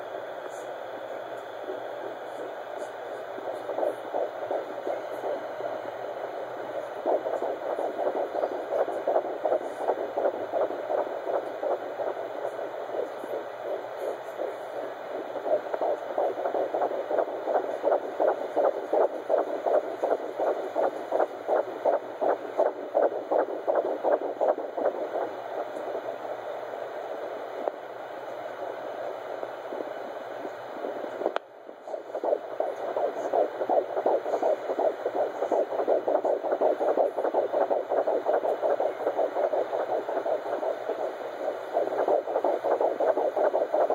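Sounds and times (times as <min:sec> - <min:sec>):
fetal heartbeat whooshing pulses: 0:00.0 - 0:43.9.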